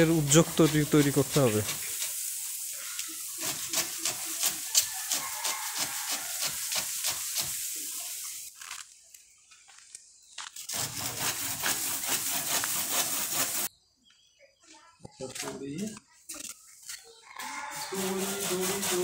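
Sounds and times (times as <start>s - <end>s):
hand saw cutting branch: 3.4s - 7.6s, 10.7s - 13.7s, 18.0s - 19.0s.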